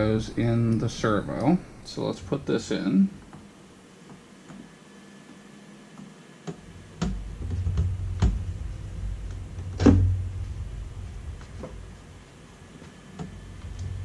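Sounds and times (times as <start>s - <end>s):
sharp clicks and knocks: 5.9s - 8.5s, 12.8s - 14.0s
low handling rumble: 7.2s - 14.0s.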